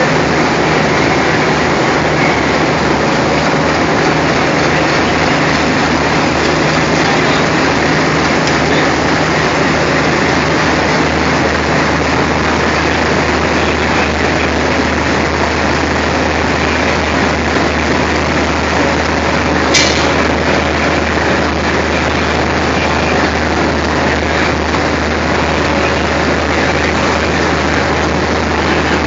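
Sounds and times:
locomotive engine idling: 0.0 - 29.0
sharp click: 19.7 - 20.2.

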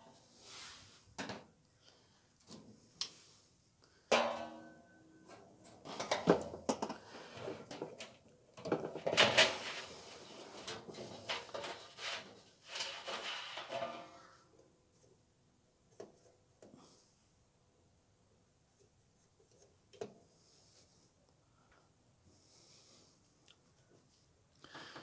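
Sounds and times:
metal knocks and clanks: 4.1 - 6.6, 13.0 - 14.3
metal clattering: 10.7 - 14.4.

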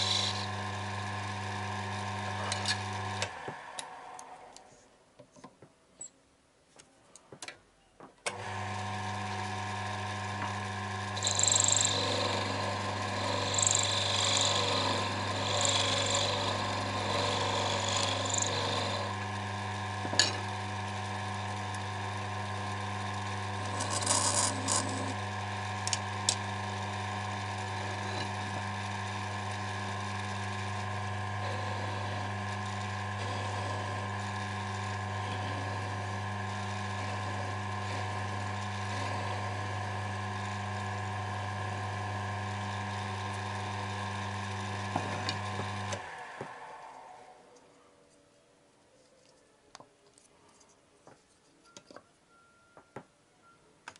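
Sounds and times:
cutting tool scraping wood: 0.0 - 0.6, 10.5 - 19.2, 23.6 - 25.2, 27.6 - 28.6, 31.4 - 34.2
lathe motor humming: 0.0 - 4.7, 8.3 - 47.4.

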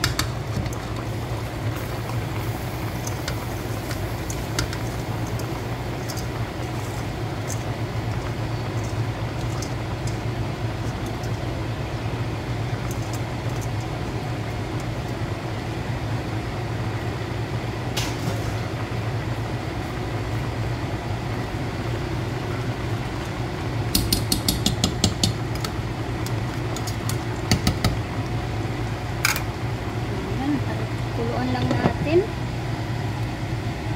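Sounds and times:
low mechanical hum: 0.0 - 33.9
spoon knocking against pot: 24.0 - 25.4, 27.5 - 28.0.

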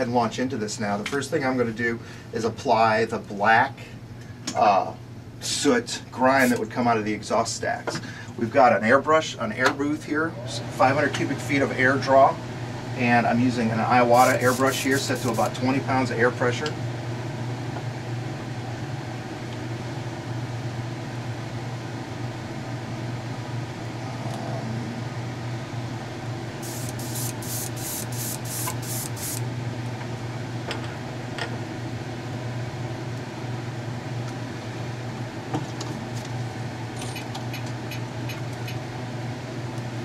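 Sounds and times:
exhaust fan humming: 0.0 - 40.0
airbrush spraying hissing bursts: 6.4 - 6.6, 14.1 - 15.5, 26.6 - 29.4.

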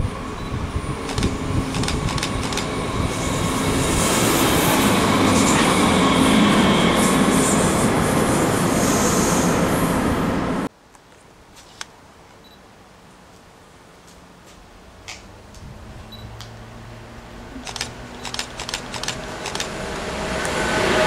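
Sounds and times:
electric trains running past: 0.0 - 10.7, 16.1 - 21.0.

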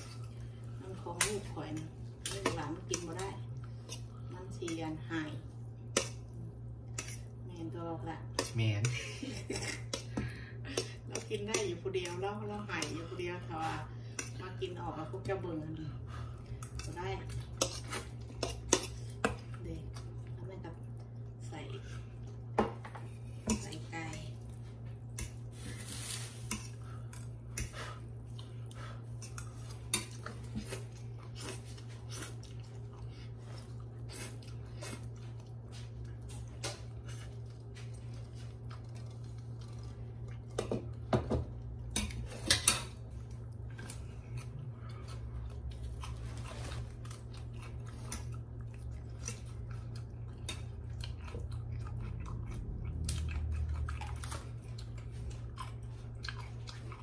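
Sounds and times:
chewing: 23.1 - 40.6, 41.7 - 57.0.

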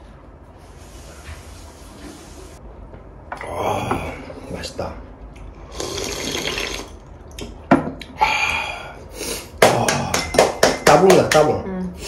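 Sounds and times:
person slurping a drink: 5.7 - 7.0.

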